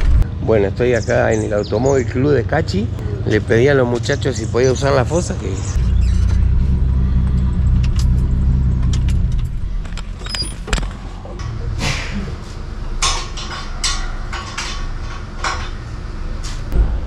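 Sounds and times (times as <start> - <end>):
low engine rumble: 0.0 - 17.0
tools scraping and rattling: 7.4 - 16.8.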